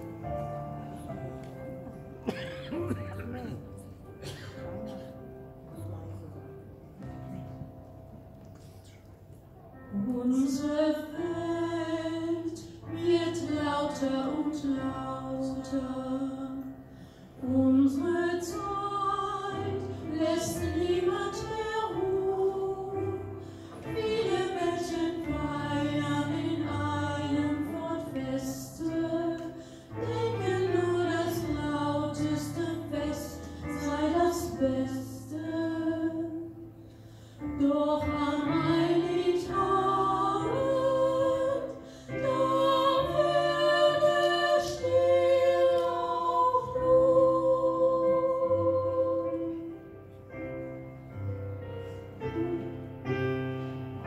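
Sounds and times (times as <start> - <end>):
mixed choir singing: 10.2 - 16.8, 17.4 - 36.6, 37.5 - 49.7.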